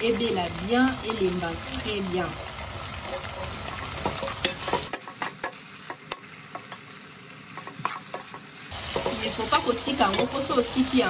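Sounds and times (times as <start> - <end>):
vegetables sizzling in a pot: 0.0 - 11.0
metal utensil scraping a pot: 3.0 - 5.6.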